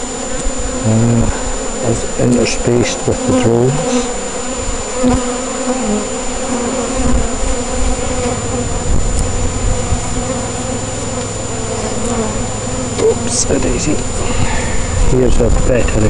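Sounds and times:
honeybees buzzing: 0.0 - 16.0
low rumble: 8.0 - 16.0.

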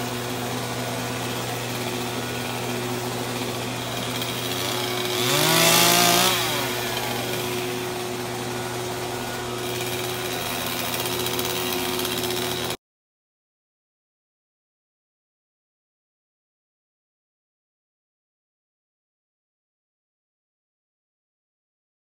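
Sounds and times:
motorised pole saw running: 0.0 - 12.8.

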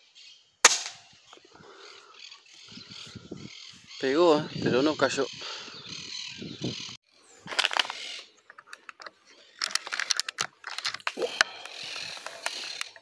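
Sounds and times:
rifle handling clicks and rattles: 7.5 - 11.2.

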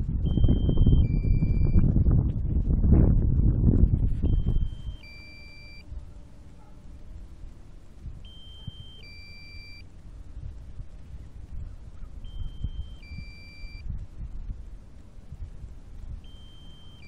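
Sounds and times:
faint low rumble: 0.0 - 17.0
drone controller alert beep: 0.2 - 1.9, 4.2 - 6.0, 8.2 - 9.9, 12.2 - 13.9, 16.2 - 17.0.

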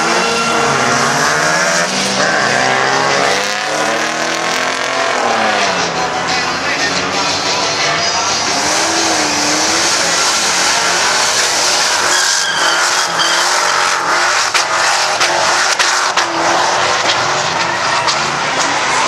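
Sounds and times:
car engine revving high: 0.0 - 19.0
tyres squealing: 7.7 - 19.0.

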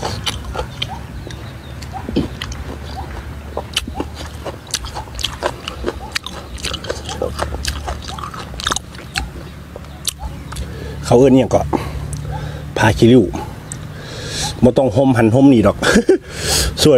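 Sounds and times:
wet chewing smacks and clicks: 0.0 - 10.8, 12.0 - 12.4, 13.6 - 14.6.

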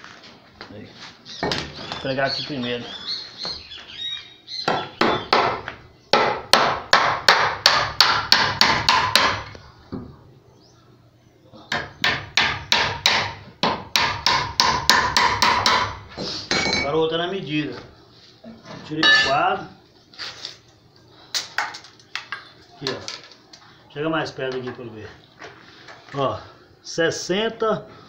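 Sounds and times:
hammer nailing wooden boards: 4.6 - 9.5, 11.7 - 16.0.

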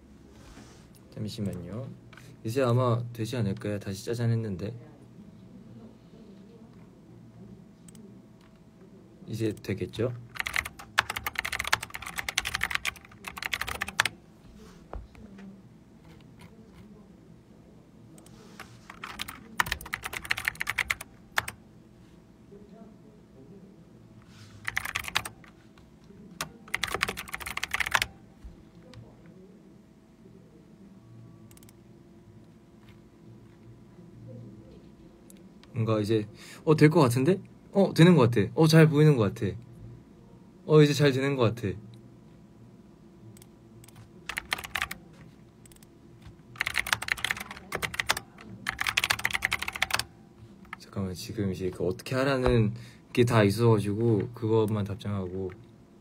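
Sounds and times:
computer keyboard typing: 9.6 - 14.1, 18.9 - 21.6, 24.6 - 25.6, 26.4 - 28.2, 43.8 - 45.0, 45.6 - 50.9.

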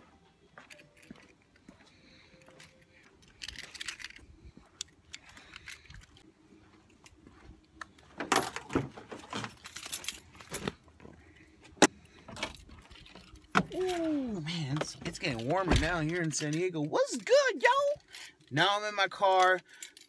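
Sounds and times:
keys jangling: 0.6 - 6.2, 9.4 - 10.8, 19.4 - 20.0.

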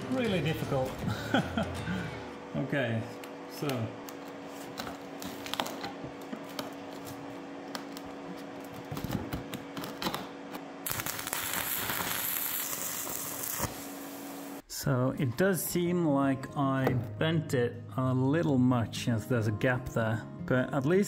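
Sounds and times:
welding arc crackling: 10.8 - 14.6.

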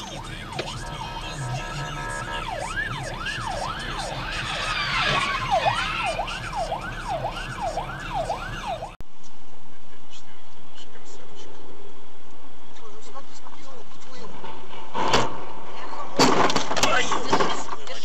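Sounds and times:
police siren wailing: 0.0 - 9.0.

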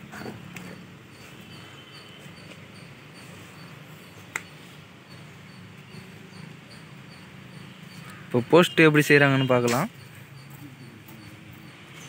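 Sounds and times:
sharp click: 4.3 - 4.5, 9.6 - 9.9
soft high ticks: 4.3 - 5.2.

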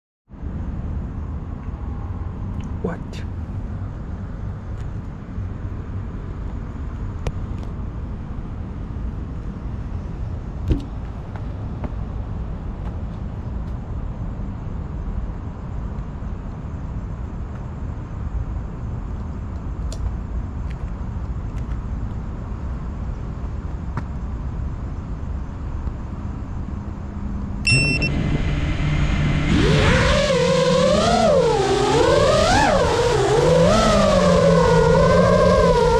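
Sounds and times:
low background rumble: 0.3 - 35.9
loud bump: 10.6 - 11.2
drone motors and propellers: 27.7 - 35.9.

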